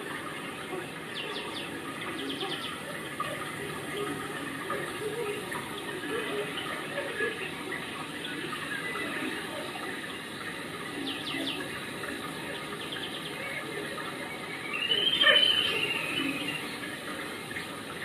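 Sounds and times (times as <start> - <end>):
running water: 0.0 - 18.0
bird chirps: 14.7 - 16.8.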